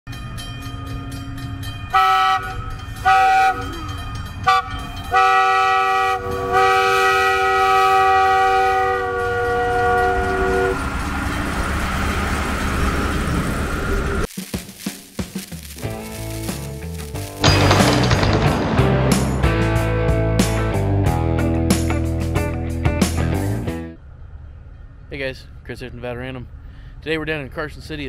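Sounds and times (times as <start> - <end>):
wheel and rail noise: 0.1 - 18.4
multi-note horn blasts: 1.9 - 3.8, 4.4 - 10.9.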